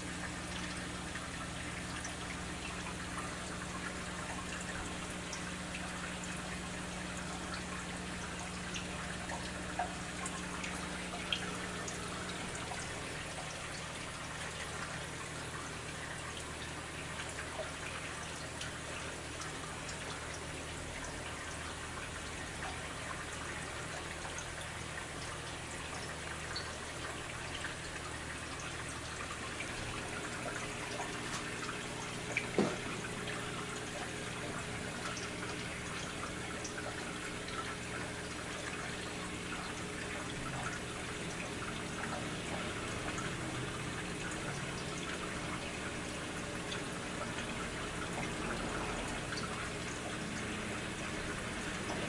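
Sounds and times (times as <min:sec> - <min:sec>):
equipment humming: 0:00.0 - 0:16.1, 0:27.6 - 0:52.0
water trickling and dripping: 0:00.0 - 0:52.0
bubbles ticking: 0:25.4 - 0:52.0
short knocks: 0:32.6 - 0:32.9.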